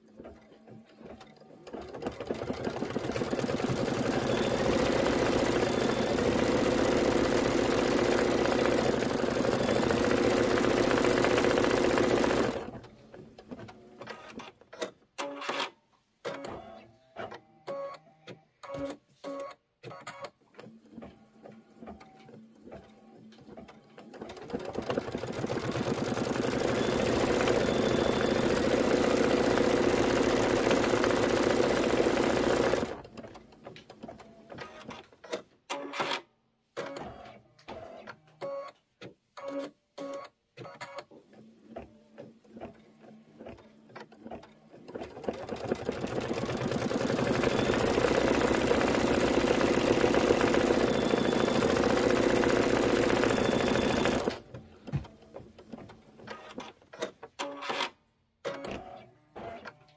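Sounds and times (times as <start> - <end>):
embroidery machine stitching: 0.0 - 14.6, 23.6 - 36.2, 43.4 - 54.6.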